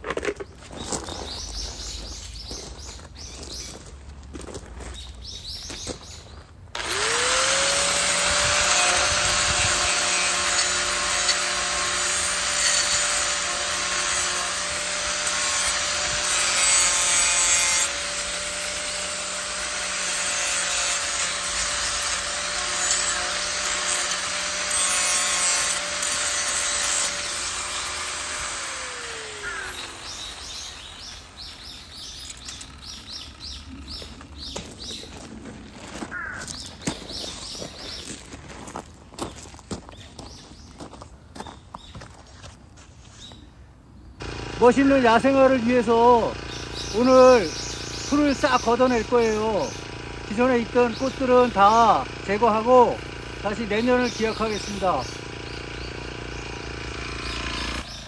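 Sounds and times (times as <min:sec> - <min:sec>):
faint outdoor sounds: 0:00.0 - 0:58.0
grass trimmer cutting grass: 0:06.7 - 0:34.9, 0:44.2 - 0:58.0.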